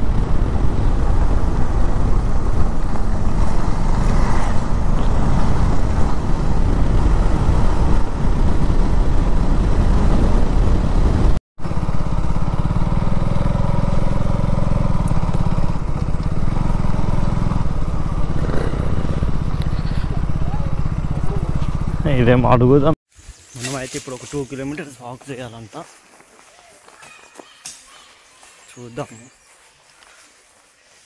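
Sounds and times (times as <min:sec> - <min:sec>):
motorcycle engine rumble: 0:00.0 - 0:23.0.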